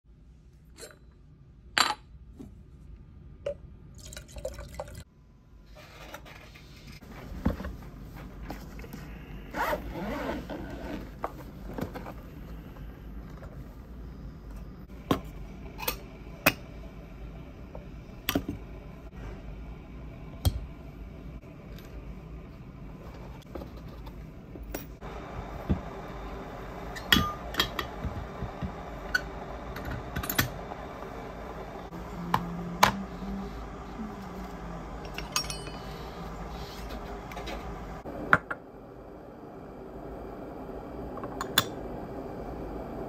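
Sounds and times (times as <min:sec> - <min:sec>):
liquid pouring: 0:03.9 - 0:05.1.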